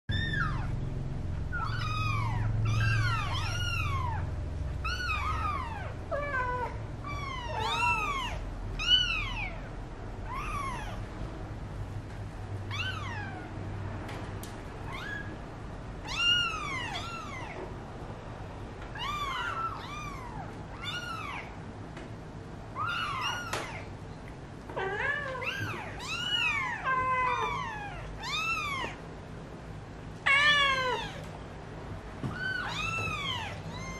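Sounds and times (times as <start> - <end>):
kittens mewing: 0.1 - 0.8, 1.5 - 11.1, 12.7 - 13.6, 16.0 - 17.7, 18.9 - 21.6, 22.7 - 24.0, 24.7 - 29.0, 30.2 - 31.4, 32.2 - 33.9.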